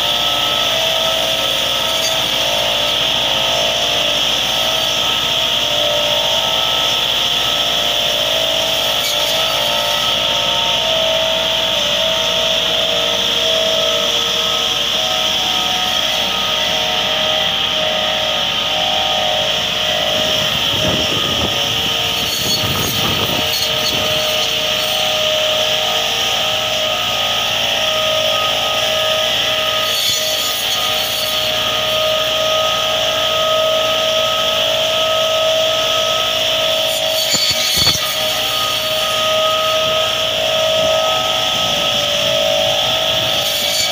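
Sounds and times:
tractor diesel engine running: 0.0s - 29.7s
saw discs whining through branches: 0.0s - 43.9s.

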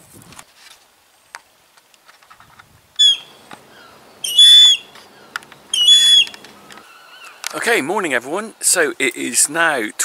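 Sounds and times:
gull calling: 3.0s - 7.5s.

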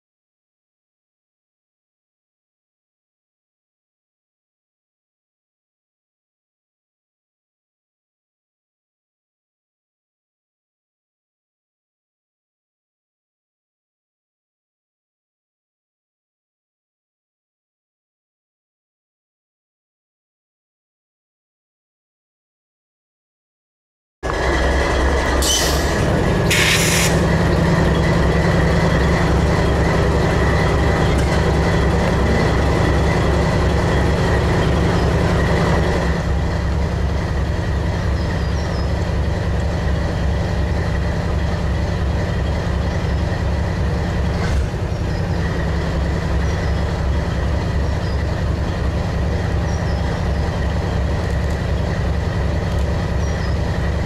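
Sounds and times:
freight train rumbling: 24.2s - 54.0s.

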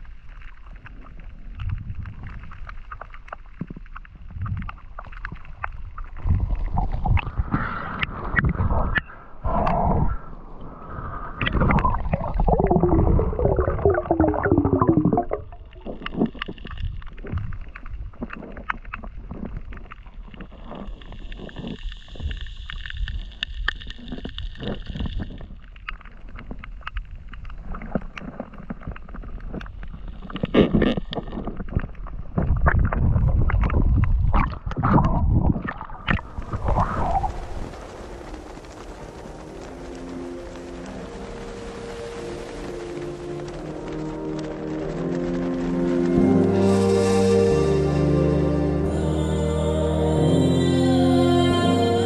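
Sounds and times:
underwater clicks: 0.0s - 10.3s, 11.4s - 37.3s
water gurgling: 0.0s - 48.2s
muffled underwater noise: 0.0s - 52.0s.

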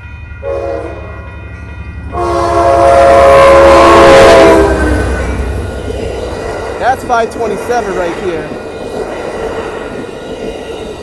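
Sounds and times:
train rumbling past: 0.0s - 11.0s
locomotive air horn blasts: 0.4s - 1.2s, 2.1s - 5.3s.

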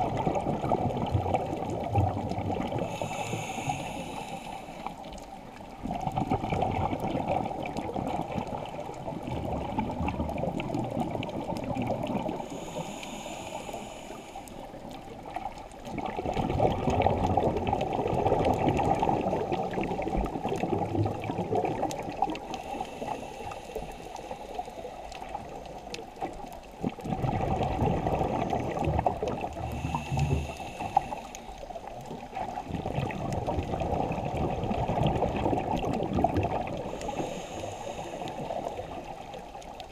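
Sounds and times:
bubbling exhaled air: 0.0s - 39.9s
hiss of inhaled air: 2.8s - 5.0s, 12.4s - 14.7s, 22.4s - 25.4s, 29.7s - 31.6s, 36.8s - 39.0s.

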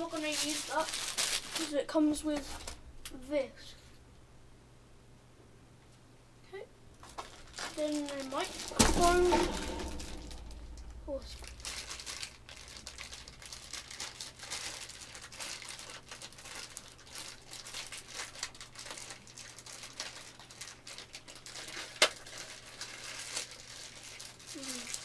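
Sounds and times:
plastic bag crinkling: 0.0s - 2.8s, 7.0s - 25.0s
sharp knock: 8.3s - 13.0s.

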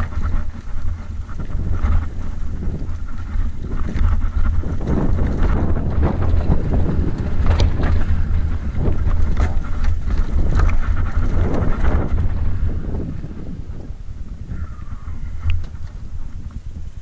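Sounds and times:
tyres crunching over loose stones: 0.0s - 12.3s
bike clattering: 0.0s - 17.0s
wind buffeting microphone: 0.0s - 17.0s.

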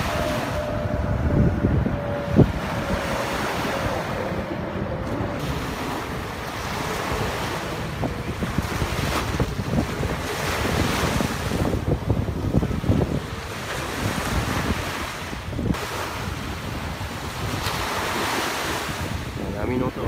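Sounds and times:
wind buffeting microphone: 0.0s - 20.0s
small waves breaking on beach: 5.0s - 20.0s.

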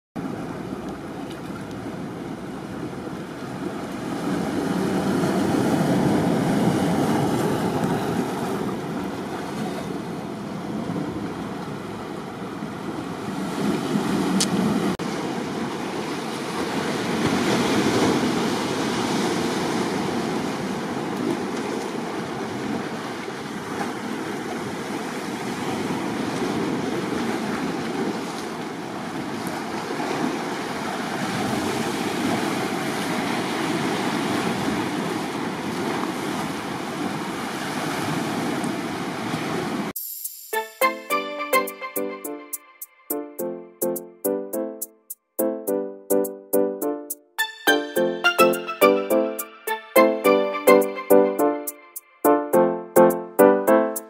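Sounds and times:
waves breaking on rocks: 0.2s - 12.0s, 13.0s - 39.9s.

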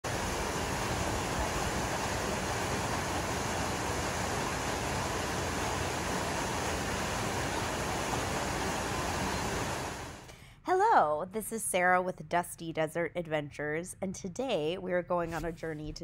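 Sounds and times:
waterfalls pouring into pools: 0.1s - 10.2s.

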